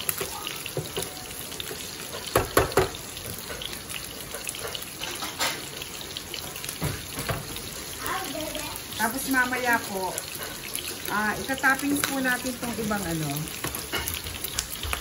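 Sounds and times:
meat sizzling in a frying pan: 0:00.0 - 0:15.0
knocks: 0:02.3 - 0:03.0.

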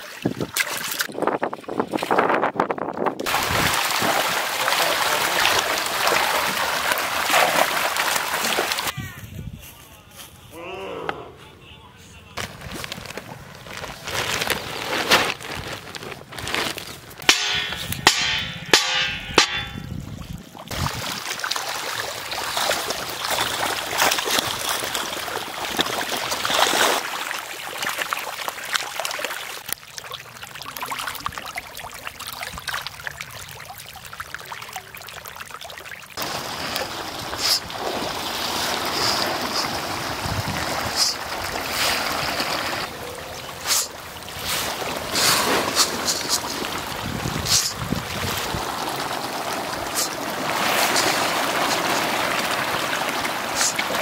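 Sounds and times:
fish thrashing and splashing: 0:03.3 - 0:08.9, 0:12.4 - 0:54.0
plastic bag crinkling: 0:12.4 - 0:17.2.

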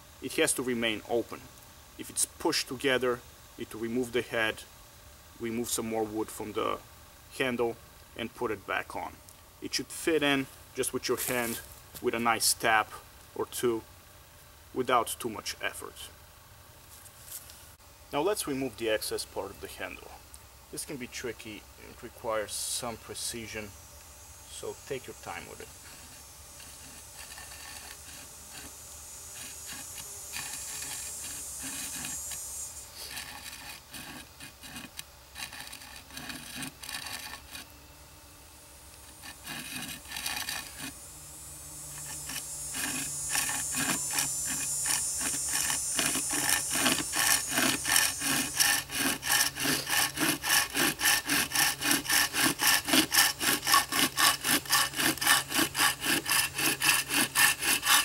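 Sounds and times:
hand saw cutting wood: 0:25.0 - 0:37.7, 0:38.9 - 0:41.0, 0:41.9 - 0:58.0.

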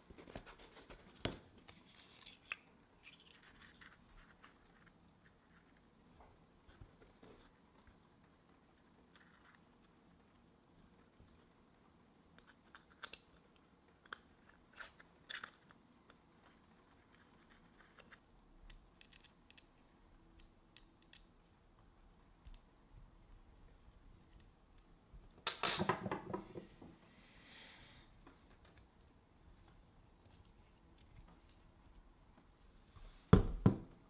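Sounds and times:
small parts and tools clicking: 0:12.3 - 0:21.4, 0:22.4 - 0:22.7.

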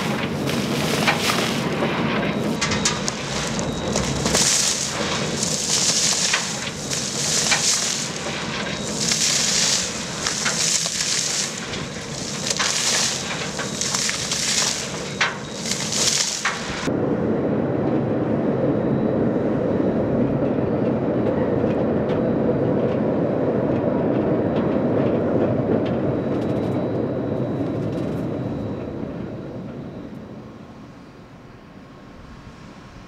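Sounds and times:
ore cars rolling on rails: 0:00.0 - 0:16.9.

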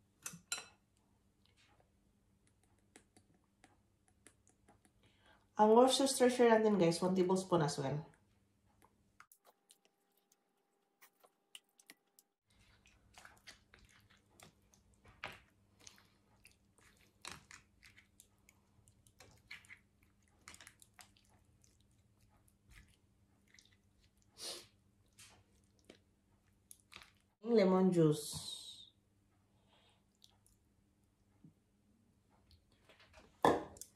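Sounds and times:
wet squelching: 0:09.2 - 0:24.7, 0:25.3 - 0:27.4.

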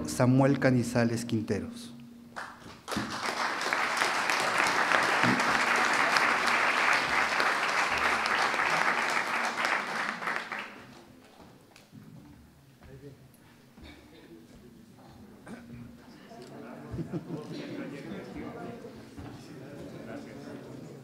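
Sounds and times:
audience applause: 0:02.4 - 0:11.0.

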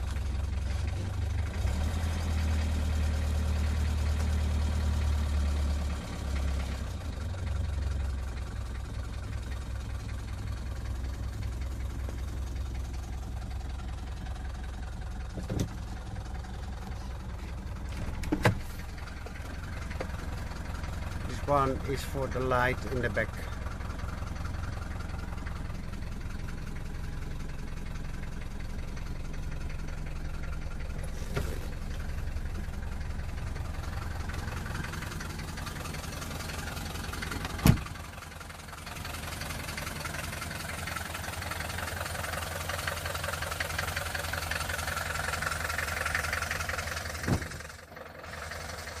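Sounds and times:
diesel engine idling: 0:00.0 - 0:49.0
car door shutting: 0:18.0 - 0:18.8, 0:37.4 - 0:38.0, 0:47.2 - 0:47.6.

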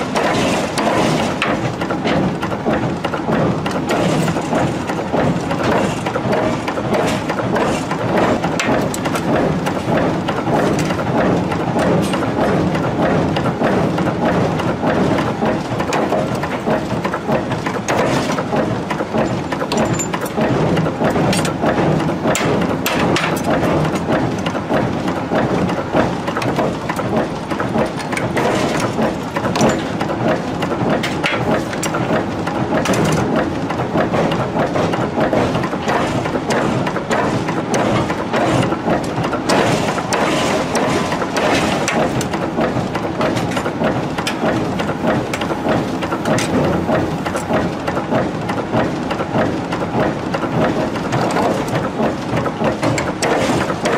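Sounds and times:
metallic clatter and knocks: 0:00.0 - 0:11.1, 0:15.5 - 0:24.6, 0:26.3 - 0:47.6
machinery running: 0:00.0 - 0:53.9.

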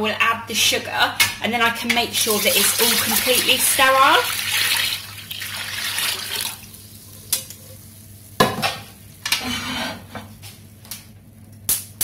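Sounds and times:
liquid pouring into metal pan: 0:02.4 - 0:07.6.

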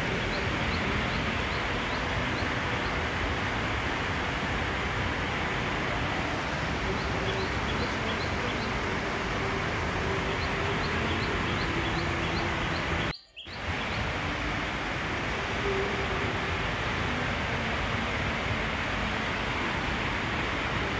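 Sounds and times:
steady rain falling: 0:00.0 - 0:20.9
small bird chirping: 0:10.8 - 0:13.6.

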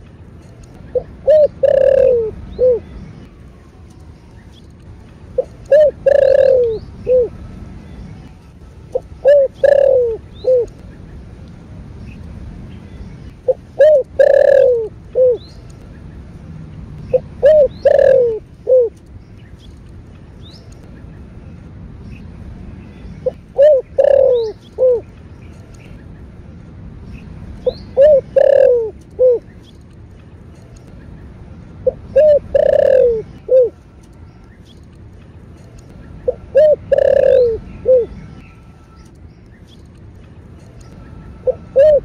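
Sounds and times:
small birds chirping: 0:00.0 - 0:42.0
dove cooing: 0:00.9 - 0:02.9, 0:05.4 - 0:07.4, 0:08.9 - 0:10.8, 0:13.4 - 0:15.4, 0:17.1 - 0:19.0, 0:23.2 - 0:25.1, 0:27.6 - 0:29.5, 0:31.8 - 0:33.8, 0:36.2 - 0:38.3, 0:41.4 - 0:42.0.

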